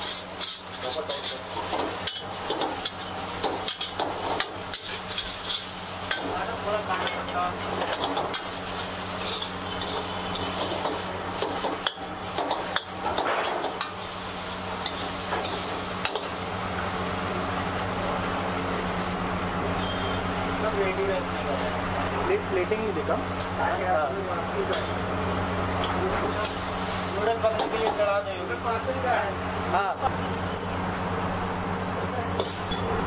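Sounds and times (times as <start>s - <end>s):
metal ladle scraping and clanking: 0.0s - 3.1s, 4.7s - 5.7s, 7.8s - 10.9s
food sizzling in a wok: 0.0s - 33.0s.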